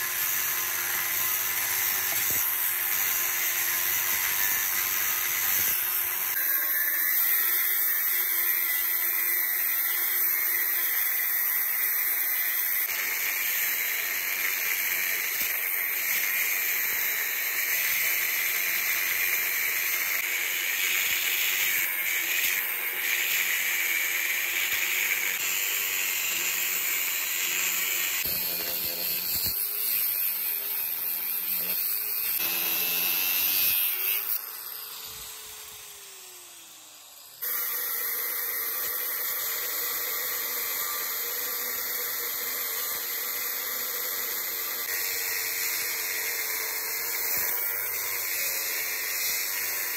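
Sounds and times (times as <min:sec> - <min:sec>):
angle grinder cutting steel: 0:00.0 - 0:49.9
grinder motor winding down: 0:16.6 - 0:49.9.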